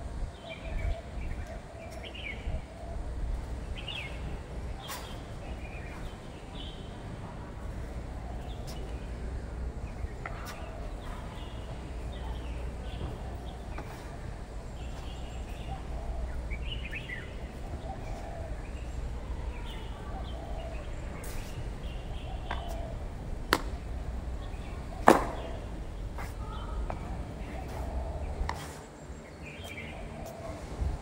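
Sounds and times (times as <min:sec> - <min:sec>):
birds chirping faintly: 0:00.3 - 0:30.8
sharp smacks: 0:23.5 - 0:23.8.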